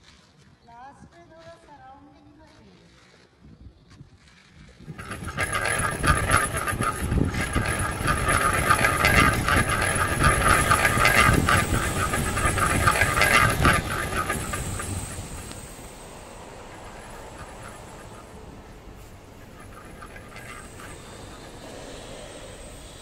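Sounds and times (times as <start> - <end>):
train wheels clattering on rails: 4.9 - 23.0.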